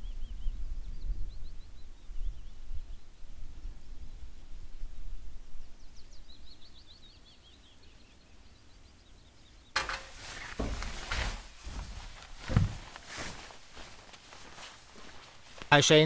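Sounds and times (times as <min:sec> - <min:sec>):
songbird chirping: 0:00.0 - 0:03.3, 0:05.5 - 0:16.0
loud thump: 0:09.8 - 0:11.9
footsteps through undergrowth: 0:09.8 - 0:16.0.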